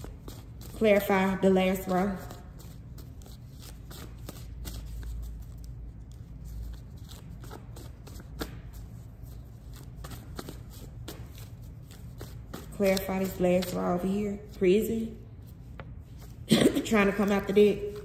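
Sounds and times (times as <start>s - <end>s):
cards shuffling: 1.7s - 14.1s.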